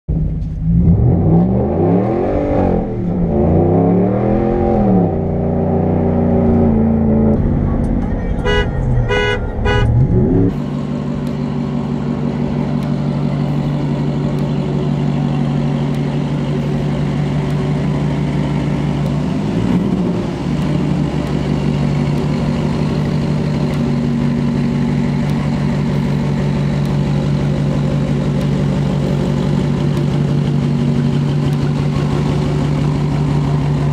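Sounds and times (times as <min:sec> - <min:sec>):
truck engine revving: 0:00.1 - 0:33.9
truck engine idling: 0:06.6 - 0:33.9
horn toots: 0:08.2 - 0:10.6.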